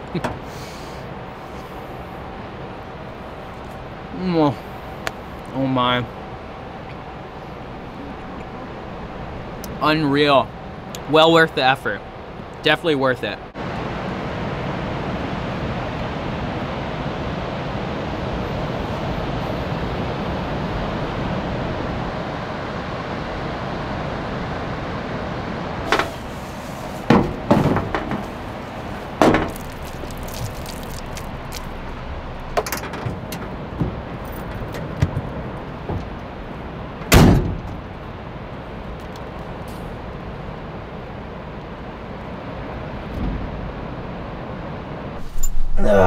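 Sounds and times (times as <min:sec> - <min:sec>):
ocean surf: 0:00.0 - 0:32.6
knocks and clicks of gear: 0:32.5 - 0:36.2.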